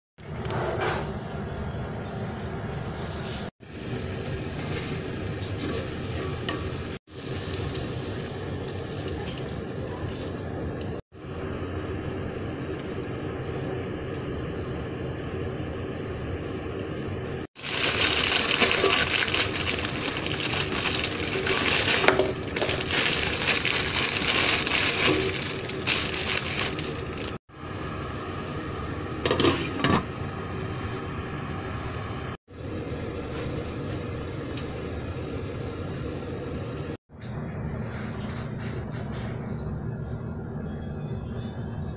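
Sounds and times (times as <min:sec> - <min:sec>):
plastic packet crinkling: 0:17.6 - 0:27.4.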